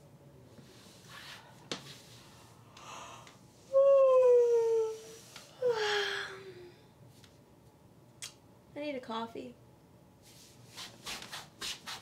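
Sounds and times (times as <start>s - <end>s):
soft breaths: 0.5s - 3.8s.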